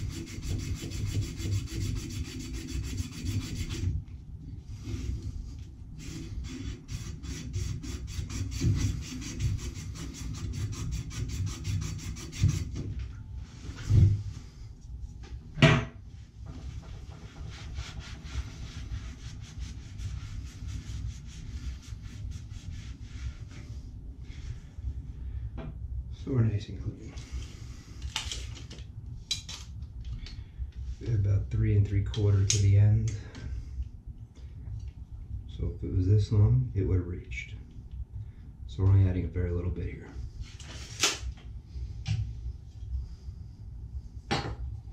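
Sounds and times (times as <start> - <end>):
abrasive cloth rubbing pipe: 0.0 - 3.9, 4.8 - 12.8, 16.5 - 24.7.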